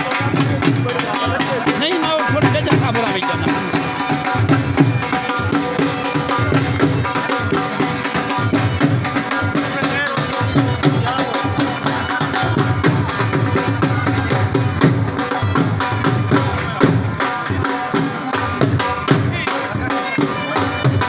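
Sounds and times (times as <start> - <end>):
crowd voices: 0.0 - 21.0
dhol drumming fast rhythm: 0.0 - 21.0.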